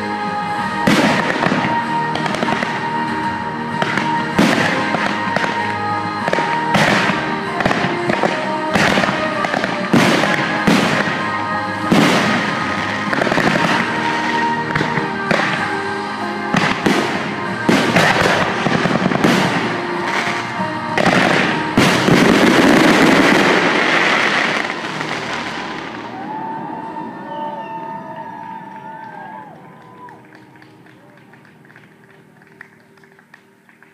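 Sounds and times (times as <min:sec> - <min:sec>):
fireworks bursting and crackling: 0:00.0 - 0:26.6
music: 0:00.0 - 0:33.9.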